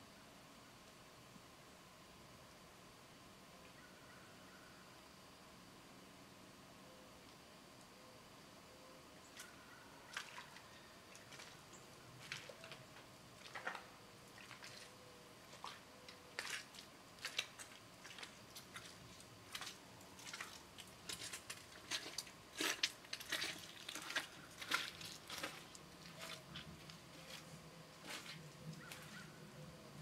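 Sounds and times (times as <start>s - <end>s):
boots squelching through mud: 10.1s - 12.8s, 13.4s - 29.3s.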